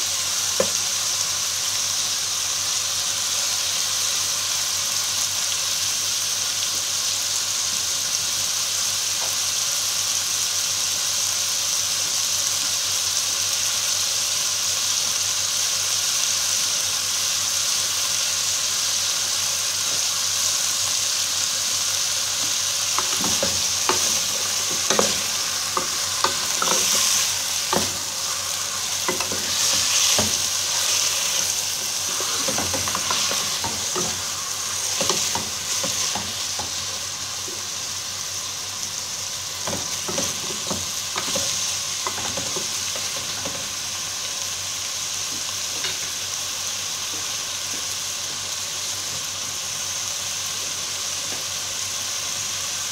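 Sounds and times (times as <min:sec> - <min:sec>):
chicken sizzling in oil: 0:00.0 - 0:52.9
spatula knocking against pot: 0:23.0 - 0:28.4.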